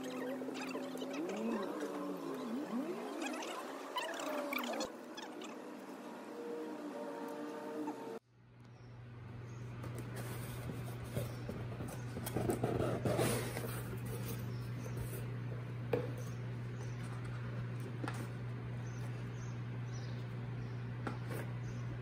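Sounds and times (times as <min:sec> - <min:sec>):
cardboard rustling and scraping: 0:09.9 - 0:15.3.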